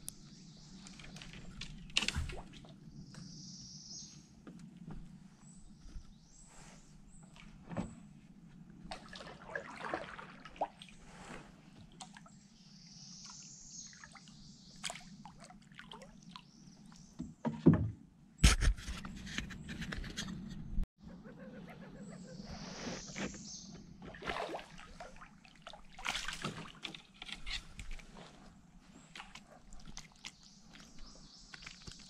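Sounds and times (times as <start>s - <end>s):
water sloshing around kayak: 6.8s - 12.4s, 23.8s - 31.2s.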